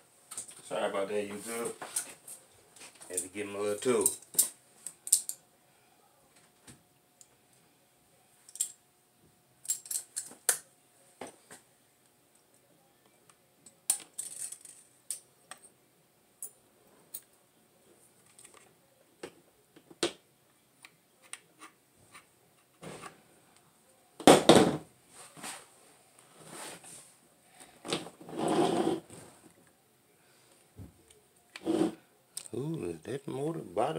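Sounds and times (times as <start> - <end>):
metal parts clicking and clinking: 4.0 - 5.4, 8.5 - 8.8, 9.6 - 10.6, 13.6 - 15.7.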